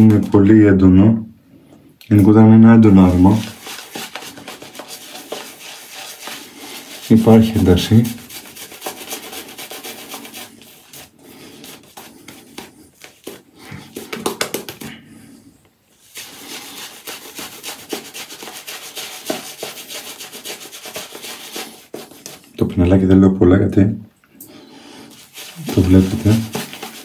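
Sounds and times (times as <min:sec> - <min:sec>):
shaving brush rubbing lather: 0:02.8 - 0:22.6, 0:24.8 - 0:27.0.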